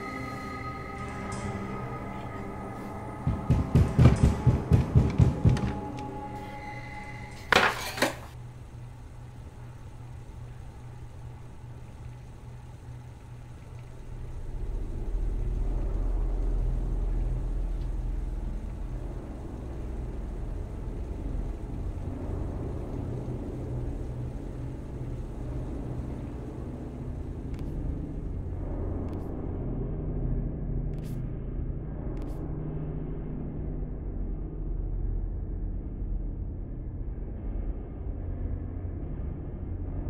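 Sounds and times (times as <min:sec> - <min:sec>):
low rumbling horror drone: 0:00.0 - 0:07.6, 0:08.3 - 0:40.0.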